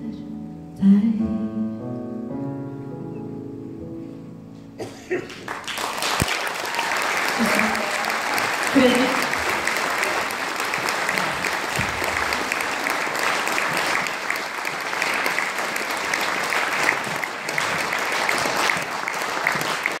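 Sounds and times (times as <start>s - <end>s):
audience applauding: 5.2s - 20.0s.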